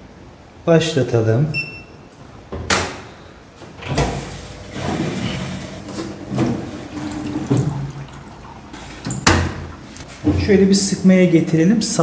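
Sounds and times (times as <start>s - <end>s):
water rushing into washing machine: 4.1s - 10.0s
water inlet valve opening: 4.7s - 10.0s.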